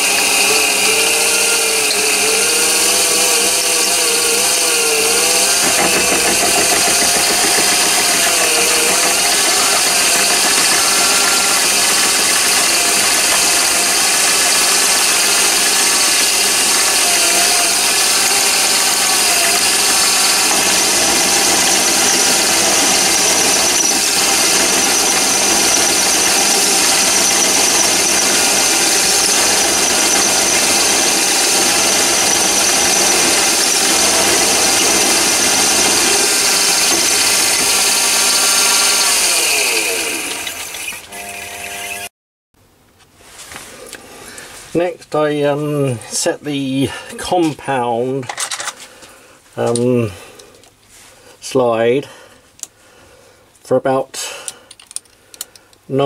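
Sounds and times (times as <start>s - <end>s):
drill cutting with wavering squeal: 0.0s - 42.1s
lathe running: 0.0s - 42.1s.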